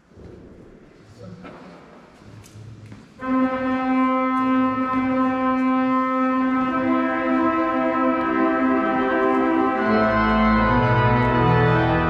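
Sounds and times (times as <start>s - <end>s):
church organ held notes: 3.2s - 12.0s.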